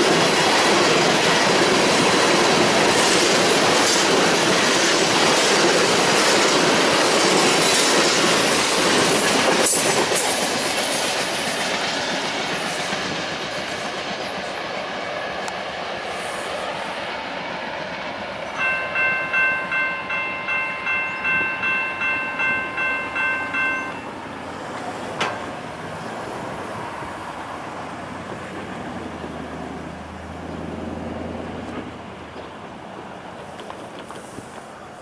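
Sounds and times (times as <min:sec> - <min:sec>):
freight cars rumbling: 0:17.7 - 0:35.0
crossing bell ringing: 0:18.5 - 0:24.4.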